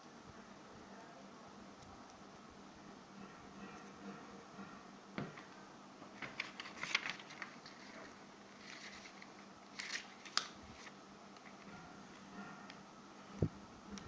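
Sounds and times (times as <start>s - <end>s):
paper rustling and crinkling: 6.1s - 11.7s.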